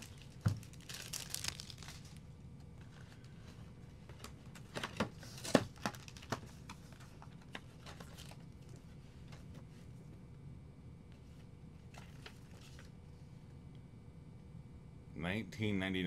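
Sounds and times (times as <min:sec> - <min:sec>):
card packs clicking and tapping: 0:04.0 - 0:08.8.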